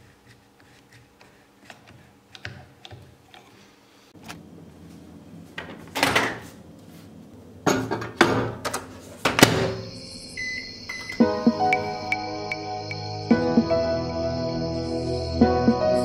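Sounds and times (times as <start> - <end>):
microwave door opening and shutting: 5.6 - 6.5, 7.7 - 10.0
short electronic beep: 9.8 - 12.7.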